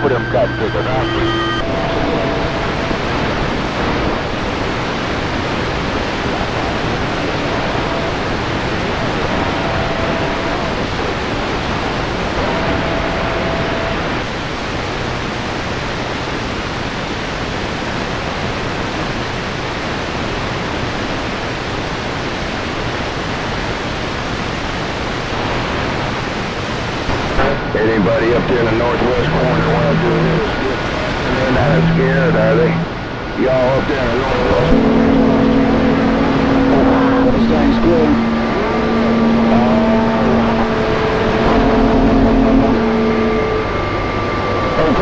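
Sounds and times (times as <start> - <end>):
faint radio whistle: 0.0 - 3.0
radio static hiss: 0.0 - 45.0.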